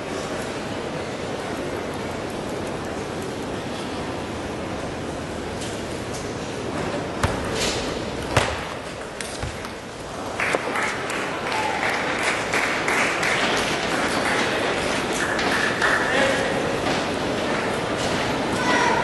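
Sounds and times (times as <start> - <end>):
crowd murmur in a hall: 0.0 - 19.0
crowd cheering and applauding: 10.3 - 16.1.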